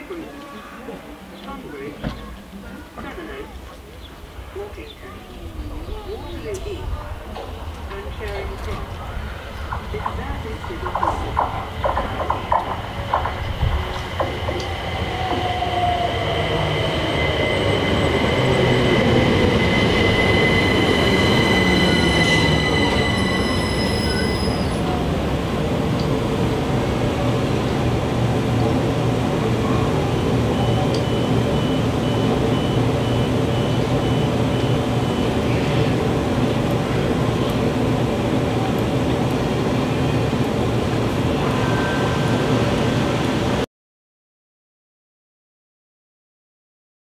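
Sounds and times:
train humming: 0.1s - 43.6s
wheel and brake squeal: 16.6s - 24.8s.

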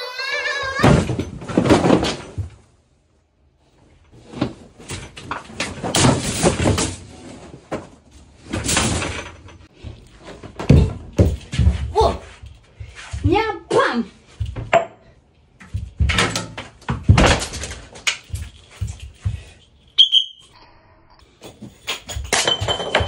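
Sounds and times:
bangs knocks and clattering: 0.8s - 2.7s, 4.4s - 12.2s, 15.6s - 19.5s, 21.4s - 23.0s.

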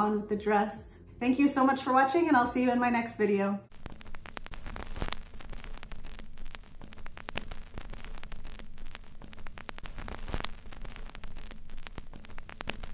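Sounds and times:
dense crackling: 3.7s - 12.9s
steady hiss: 3.7s - 12.9s.

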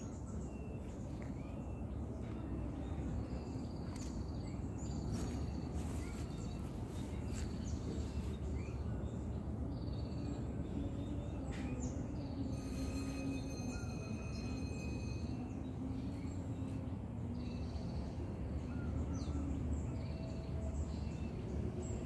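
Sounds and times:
small birds chirping: 0.0s - 13.5s.

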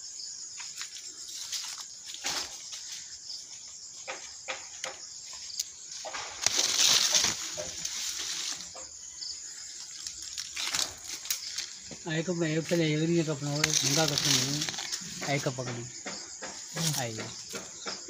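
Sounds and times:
high-pitched insect buzz: 0.0s - 15.4s
leaves rustling: 0.5s - 15.9s, 16.6s - 17.6s.

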